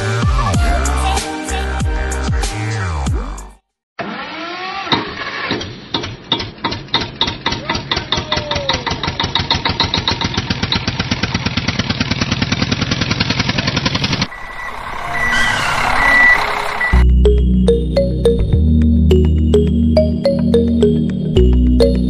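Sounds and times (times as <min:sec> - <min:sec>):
tractor engine starting up: 0:04.0 - 0:08.0, 0:08.8 - 0:17.0.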